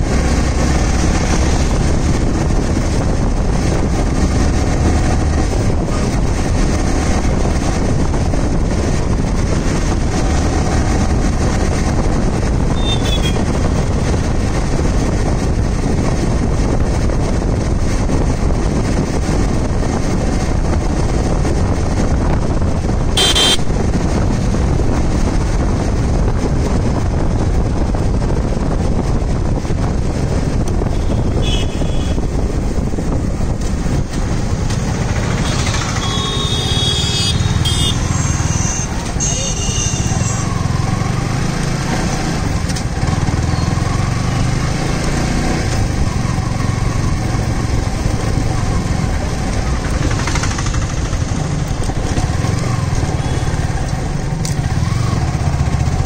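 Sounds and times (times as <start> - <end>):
motorcycle engine cruising: 0.0 - 56.0
wind and road noise: 0.0 - 56.0
horn beep: 23.2 - 23.7, 35.4 - 40.4.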